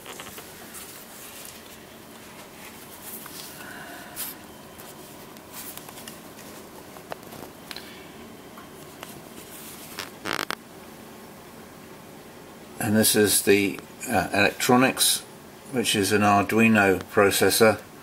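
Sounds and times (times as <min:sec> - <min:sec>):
low room hum: 0:00.0 - 0:18.0
handling clicks and rustles: 0:04.7 - 0:07.8.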